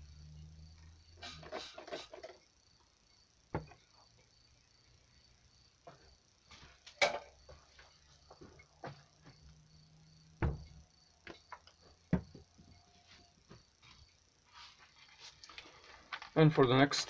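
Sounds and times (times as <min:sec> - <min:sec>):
knocks on wooden bench: 0:03.5 - 0:03.8, 0:10.4 - 0:10.8, 0:12.1 - 0:12.6.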